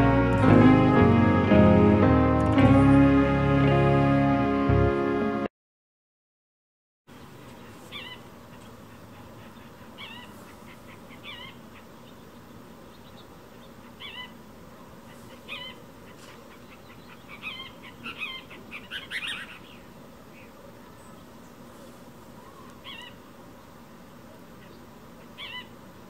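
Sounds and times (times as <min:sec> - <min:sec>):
bird calling: 0:07.2 - 0:23.8, 0:24.5 - 0:26.0.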